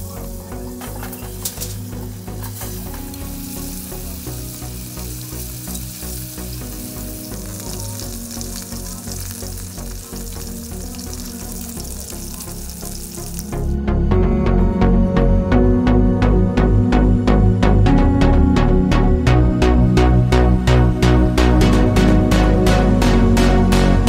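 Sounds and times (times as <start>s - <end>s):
meat sizzling in oil: 2.4s - 13.8s.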